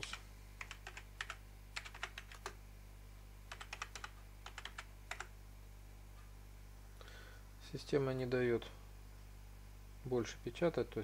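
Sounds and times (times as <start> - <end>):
keyboard typing: 0.0 - 2.6, 3.5 - 5.3.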